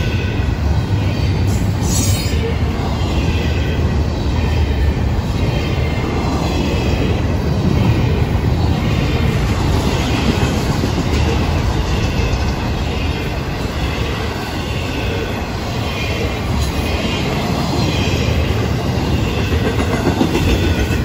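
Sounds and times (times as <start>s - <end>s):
freight train wheels rumbling on rail: 0.0s - 21.0s.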